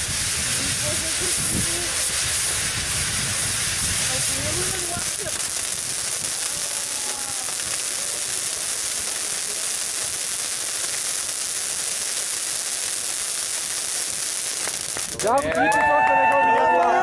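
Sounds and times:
sparklers hissing: 0.0s - 15.5s.

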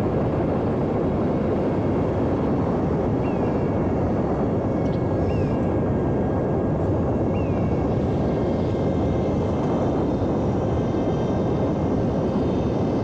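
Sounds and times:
high motor and propeller whine: 0.0s - 13.0s.

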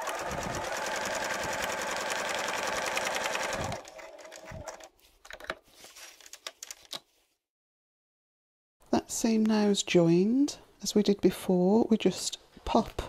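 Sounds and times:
sewing machine stitching: 0.0s - 4.9s
fabric rustling: 3.8s - 6.3s.

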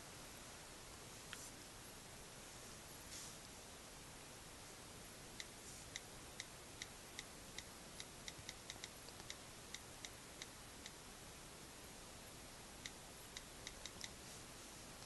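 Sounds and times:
on-screen keyboard clicks: 5.4s - 11.0s, 12.8s - 14.2s.

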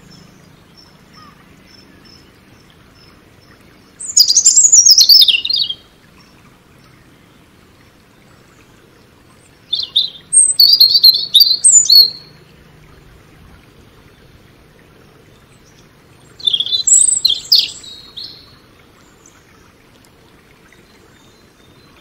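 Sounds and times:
robin singing: 0.0s - 7.4s, 9.6s - 12.4s, 15.4s - 19.4s.

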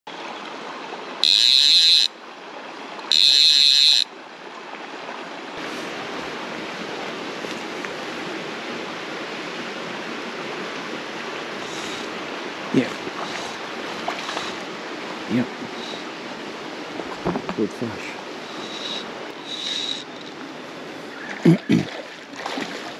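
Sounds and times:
creek rushing: 0.1s - 22.9s
fishing reel click drag buzzing: 1.2s - 2.0s, 3.1s - 4.0s
brief thump: 17.2s - 17.6s.

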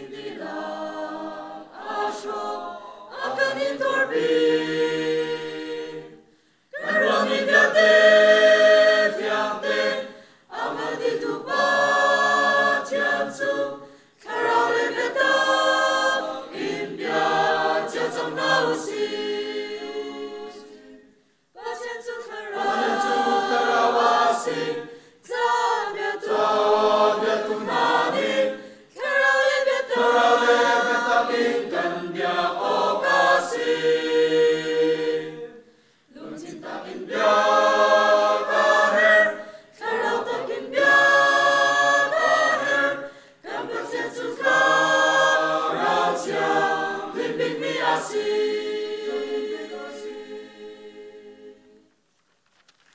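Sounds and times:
mixed choir singing unaccompanied: 0.0s - 51.9s.

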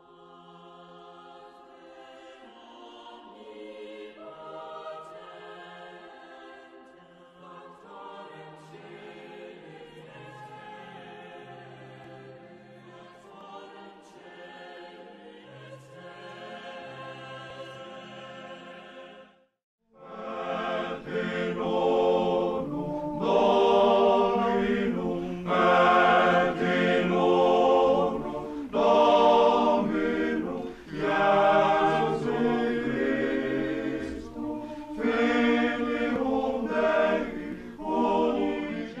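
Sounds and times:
choir singing: 0.0s - 39.0s.

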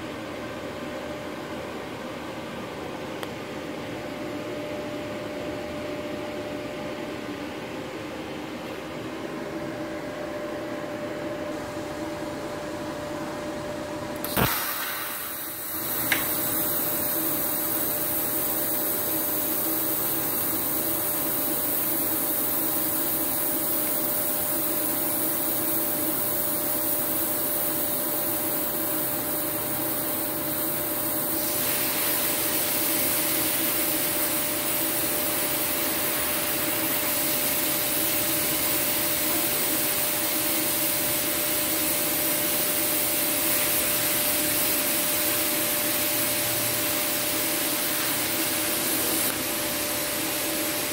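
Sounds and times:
arc striking click: 14.2s - 16.5s
welding arc hissing: 14.2s - 50.9s.

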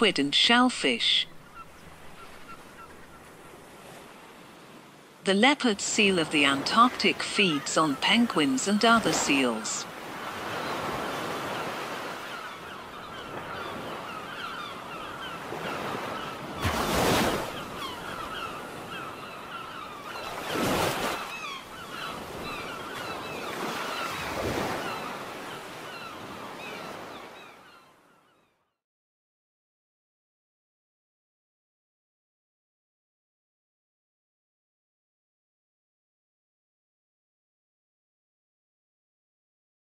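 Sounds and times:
ocean surf washing: 0.0s - 27.5s
waves breaking: 0.0s - 27.5s.

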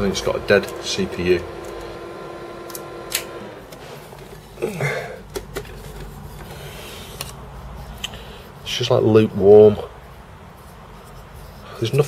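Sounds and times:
computer hum winding down: 0.0s - 4.4s.

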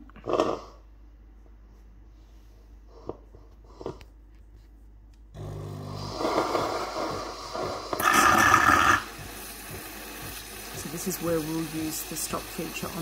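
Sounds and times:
pump hum: 5.4s - 13.0s
steam hissing and gurgling through milk: 5.8s - 13.0s.

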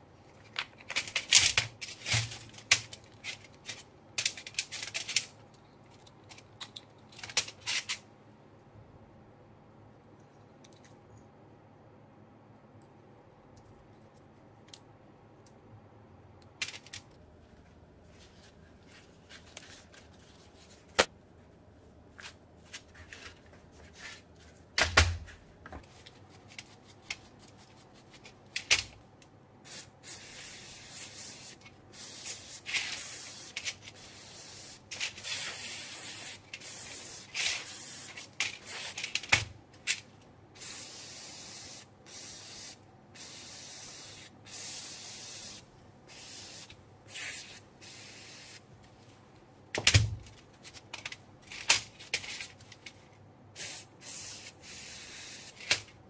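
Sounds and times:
aerosol can spraying: 29.7s - 39.0s, 40.6s - 48.6s, 53.6s - 55.6s.

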